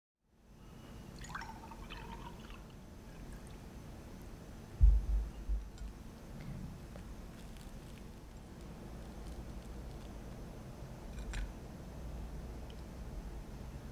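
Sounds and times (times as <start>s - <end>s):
milk pouring into glass: 1.2s - 3.6s.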